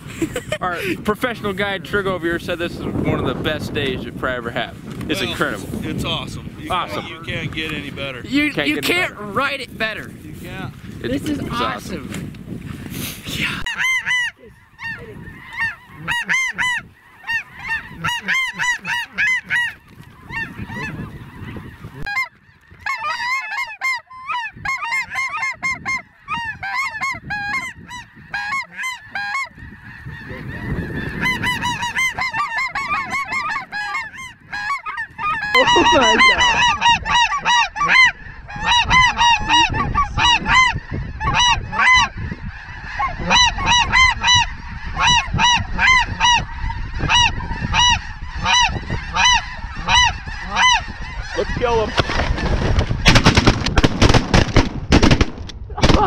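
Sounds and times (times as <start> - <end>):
flock of geese honking: 11.1 - 12.0, 13.6 - 54.4.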